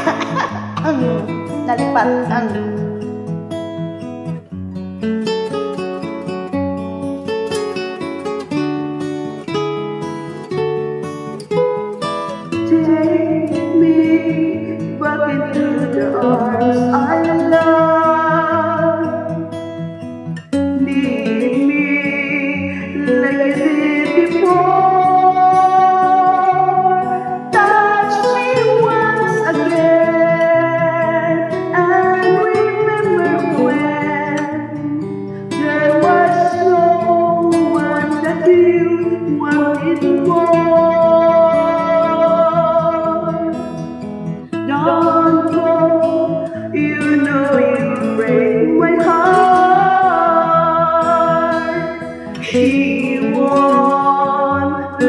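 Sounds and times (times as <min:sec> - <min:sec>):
woman singing a slow ballad: 0:00.0 - 0:02.8, 0:12.5 - 0:19.6, 0:20.6 - 0:43.8, 0:44.6 - 0:55.0
karaoke backing track: 0:00.0 - 0:03.1, 0:12.4 - 0:19.6, 0:20.6 - 0:55.0.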